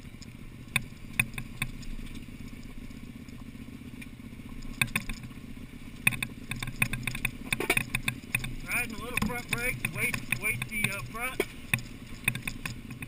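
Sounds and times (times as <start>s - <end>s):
motorcycle clattering over rocks: 0.0s - 13.0s
motorcycle engine at low revs: 0.0s - 13.0s.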